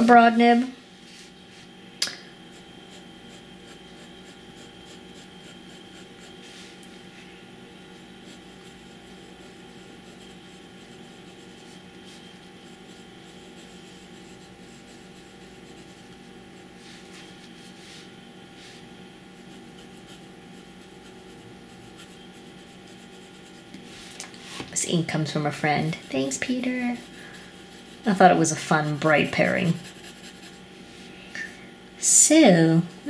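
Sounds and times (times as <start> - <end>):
fountain pen scratching on paper: 2.5 - 6.5, 8.2 - 16.2, 19.4 - 23.7, 25.1 - 30.6.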